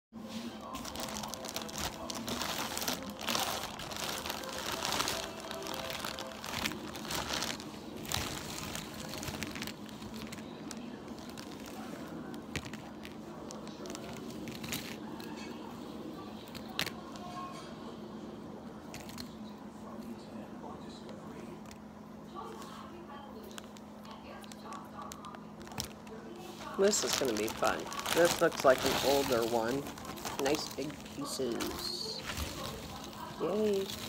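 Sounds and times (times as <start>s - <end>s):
plastic bag crinkling: 0.4s - 15.4s, 23.4s - 34.0s.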